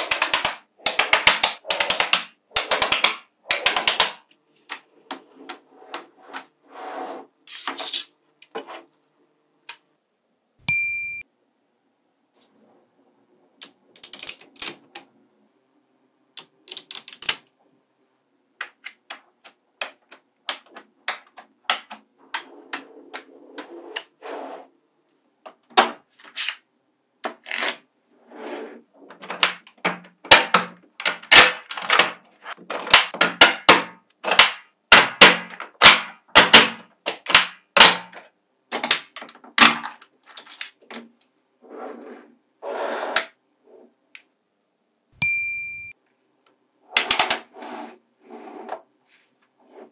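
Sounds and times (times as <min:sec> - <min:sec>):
magnetic balls clicking together: 0:00.0 - 0:04.8, 0:13.6 - 0:15.1, 0:16.4 - 0:17.5.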